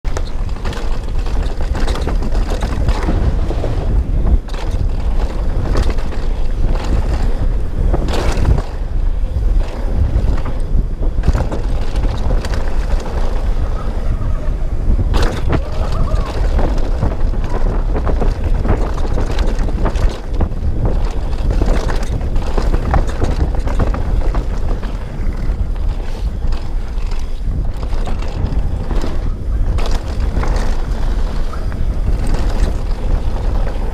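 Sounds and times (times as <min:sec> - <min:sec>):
wind buffeting microphone: 0:00.0 - 0:33.9
knocks and scrapes: 0:00.1 - 0:13.7.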